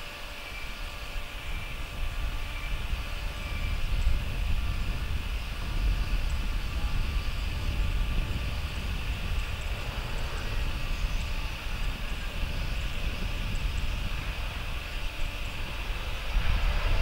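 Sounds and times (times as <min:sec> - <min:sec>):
distant jet rumble and hiss: 0:00.0 - 0:17.0.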